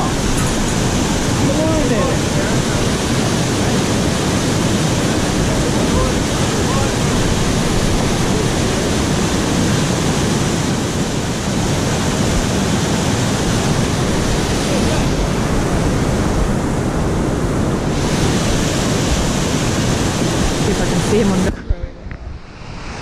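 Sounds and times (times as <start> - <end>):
water rushing over a weir: 0.0 - 21.6.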